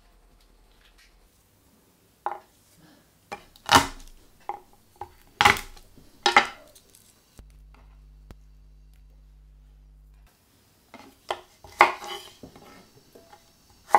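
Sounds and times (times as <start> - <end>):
knife chopping on wooden board: 3.3 - 6.7, 11.0 - 13.9.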